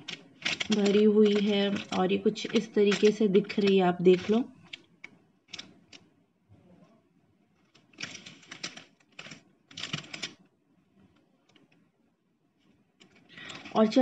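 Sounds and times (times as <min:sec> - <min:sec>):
paper wrapper crinkling: 0:00.0 - 0:04.8.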